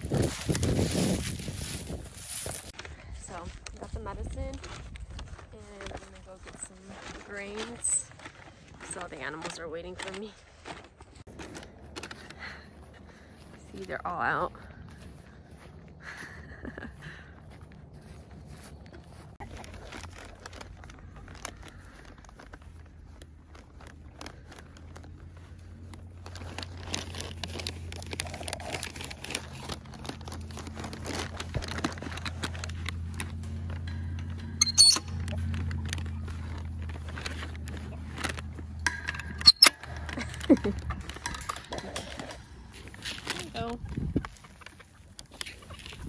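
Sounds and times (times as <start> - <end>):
footsteps through grass: 0.0 - 41.4, 42.0 - 46.0
low steady hum: 2.6 - 46.0
sharp metal clanks: 38.7 - 43.2.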